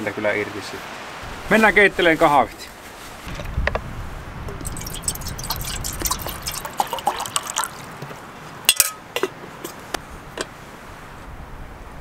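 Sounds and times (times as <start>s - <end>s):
water trickling and dripping: 4.4s - 9.9s.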